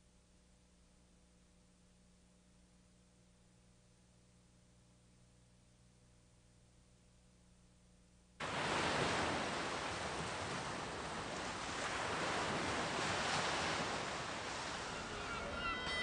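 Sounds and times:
ocean waves and surf: 8.4 - 16.0.

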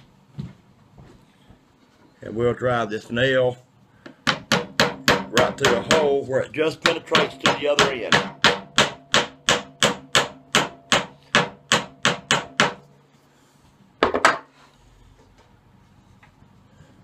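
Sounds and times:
hammer striking nail: 4.2 - 6.1, 6.8 - 12.8.

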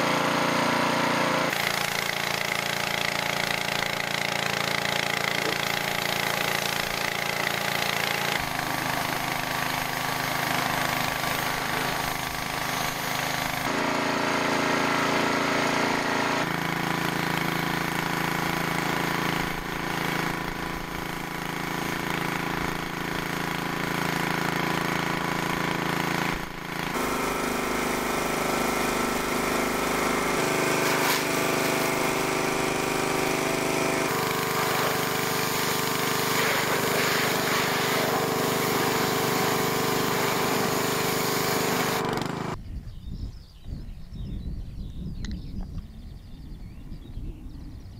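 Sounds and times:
small gasoline engine running: 0.0 - 42.6
water jet hissing: 5.2 - 13.7, 27.0 - 42.0.

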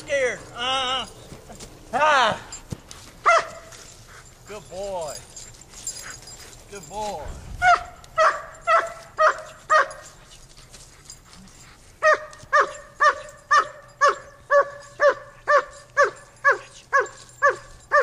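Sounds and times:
dog barking: 3.2 - 3.8, 7.6 - 10.2, 12.0 - 18.0.

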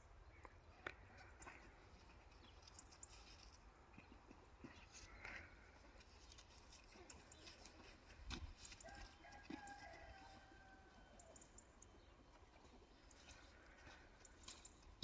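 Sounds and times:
faint rooster crow: 8.6 - 11.6.

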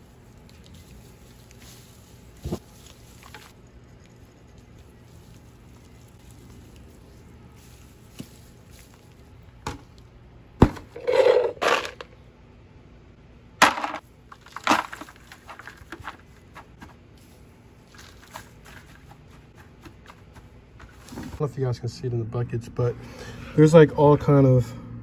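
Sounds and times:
straw crackling and rustling: 0.0 - 10.1, 13.6 - 21.4.

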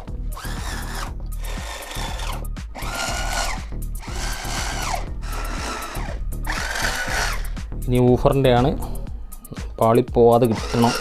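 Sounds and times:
background music: 0.0 - 11.0
electric drill bursts: 0.4 - 7.5, 10.5 - 11.0.

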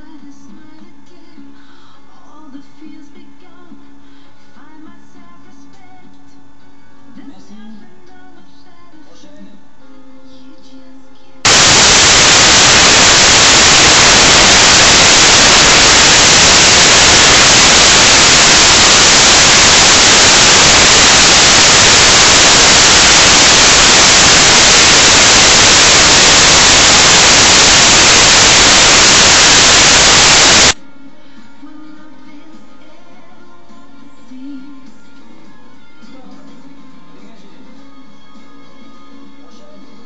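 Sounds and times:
white-noise static: 11.4 - 30.8.

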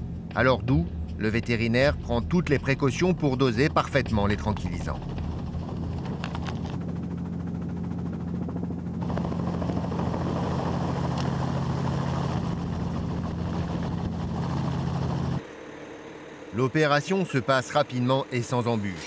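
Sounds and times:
helicopter rotor and engine hum: 0.0 - 19.0
rushing wind noise: 9.0 - 15.4.

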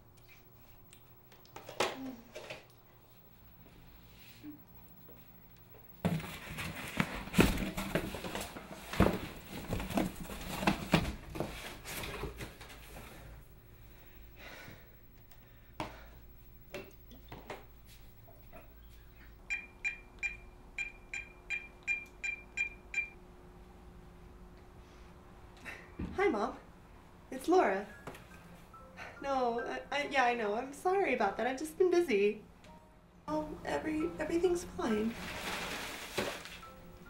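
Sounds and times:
rustling and clattering: 5.9 - 13.2, 35.1 - 36.7
phone keypad beeps: 19.5 - 23.2.

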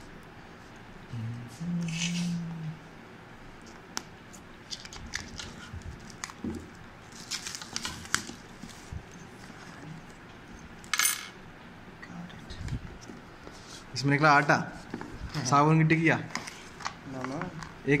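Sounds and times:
plastic and paper crinkling: 4.6 - 10.0.

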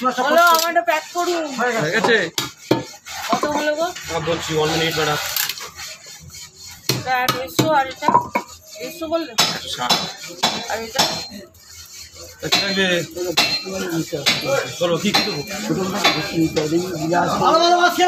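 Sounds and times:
voices talking: 0.0 - 18.0.

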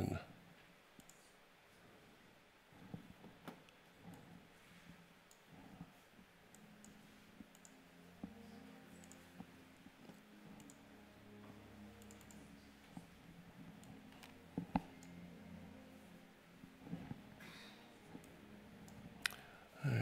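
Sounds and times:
faint low hum: 0.0 - 20.0
computer mouse clicks: 1.0 - 1.4, 2.8 - 4.5, 5.2 - 5.9, 6.5 - 7.8, 8.9 - 9.5, 10.1 - 10.8, 12.0 - 12.5.

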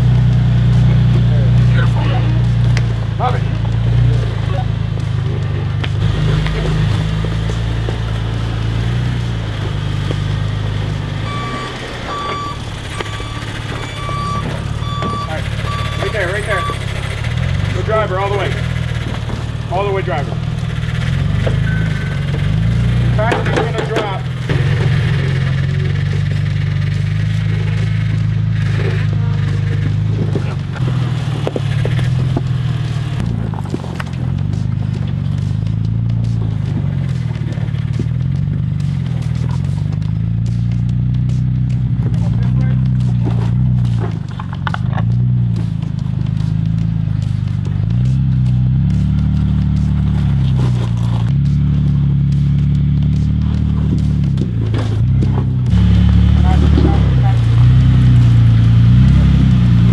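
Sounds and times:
vehicle engine running: 0.0 - 59.9
reversing beeper: 8.6 - 27.6.

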